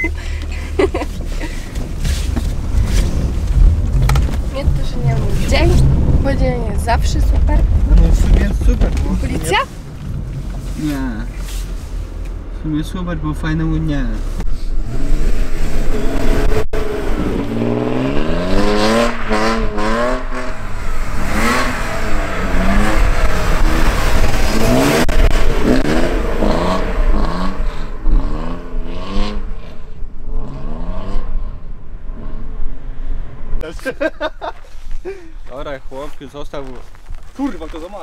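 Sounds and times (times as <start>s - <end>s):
car engine revving hard: 14.8s - 31.6s.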